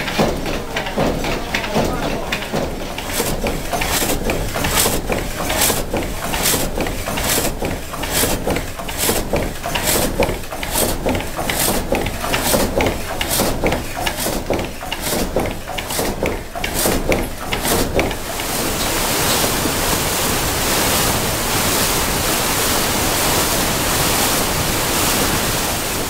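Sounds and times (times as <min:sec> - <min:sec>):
frame saw rasping through log: 0:00.0 - 0:18.8.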